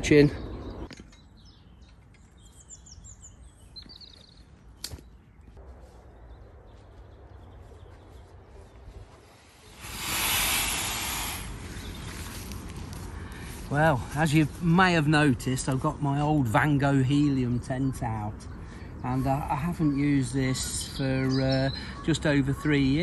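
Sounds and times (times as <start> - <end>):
small birds chirping: 0.0 - 23.0
loud rustling hiss: 9.5 - 12.7.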